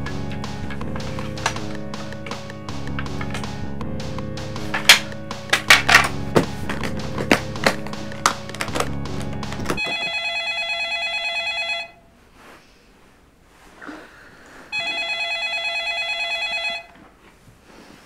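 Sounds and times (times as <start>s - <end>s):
music with sharp clicks: 0.0s - 9.9s
cordless phone ringing: 9.8s - 12.0s, 14.7s - 17.0s.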